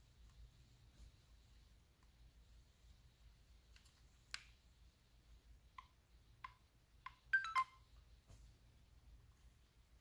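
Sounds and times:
short electronic beeps: 7.3s - 7.8s.

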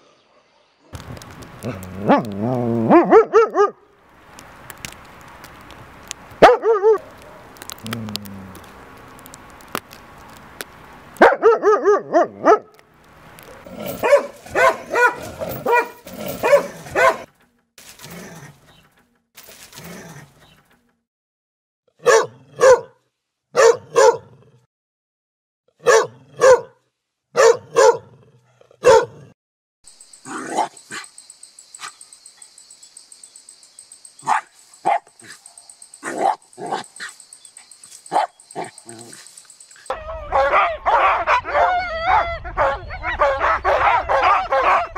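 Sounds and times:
dogs barking: 1.6s - 3.8s, 6.4s - 7.7s, 11.2s - 12.7s, 13.5s - 17.3s, 22.0s - 23.0s, 23.6s - 24.3s, 25.8s - 26.8s, 27.4s - 28.1s, 28.8s - 29.3s, 30.3s - 31.1s, 34.2s - 44.9s.

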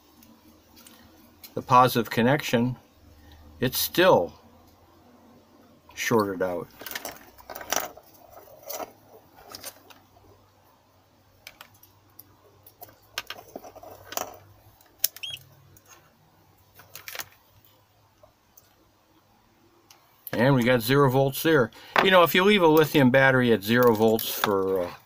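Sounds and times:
light clicks and rustles of handling: 6.1s - 10.2s, 11.4s - 18.8s.

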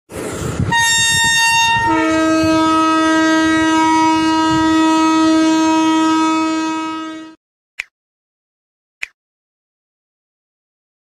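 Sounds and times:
locomotive horn: 0.6s - 7.4s.

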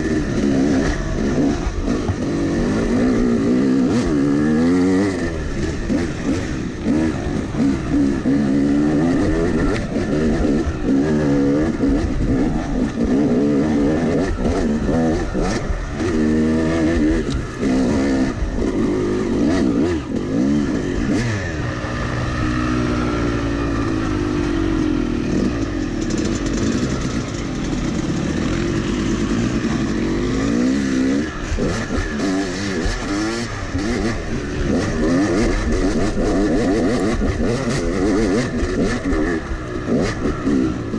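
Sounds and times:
dirt bike engine revving: 0.0s - 40.9s.

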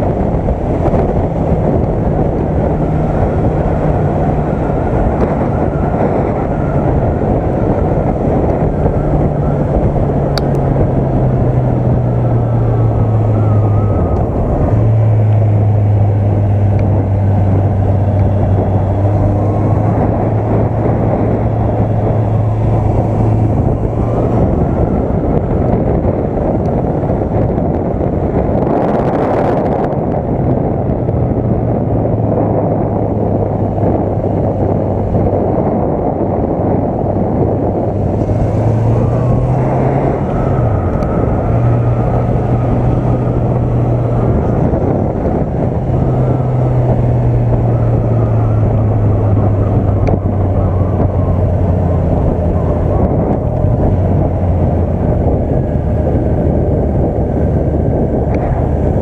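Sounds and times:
motorcycle engine cruising: 0.0s - 59.0s
wind rush on microphone: 0.0s - 59.0s.

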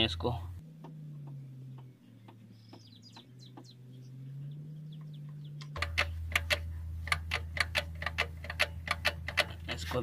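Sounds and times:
faint bird chirps: 0.0s - 5.8s
low steady hum: 0.0s - 10.0s
sharp ticks: 5.0s - 10.0s.

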